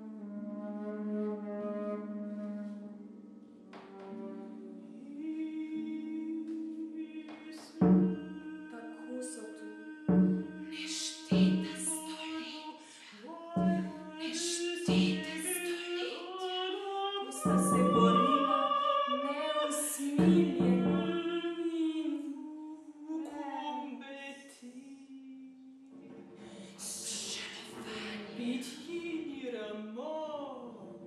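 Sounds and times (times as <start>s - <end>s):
flute: 0.0s - 6.9s, 17.4s - 21.3s
woman singing classical: 4.1s - 25.8s, 26.4s - 31.0s.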